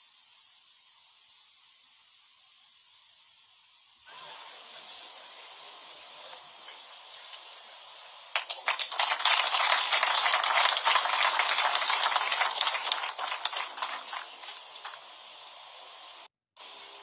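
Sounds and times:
audience applauding: 0:08.4 - 0:15.1.

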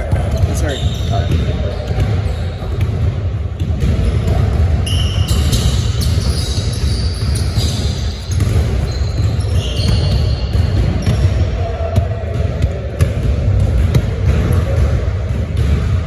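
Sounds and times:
basketballs bouncing: 0:00.0 - 0:16.0
shoe squeaks: 0:00.4 - 0:02.7, 0:04.8 - 0:11.3.

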